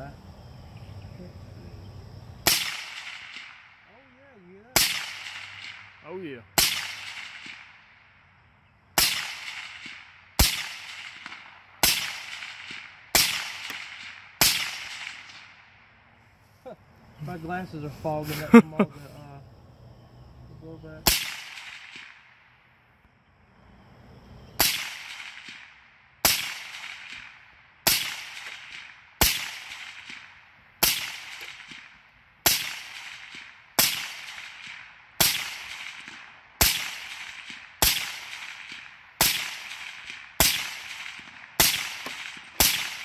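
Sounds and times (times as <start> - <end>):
gunshot echo: 2.4 - 3.8, 4.8 - 6.0, 6.6 - 7.9, 9.0 - 15.6, 21.0 - 22.4, 24.6 - 43.0
suppressed rifle shots: 2.4 - 3.8, 4.8 - 6.0, 6.6 - 8.0, 9.0 - 15.6, 21.0 - 22.4, 24.6 - 43.0.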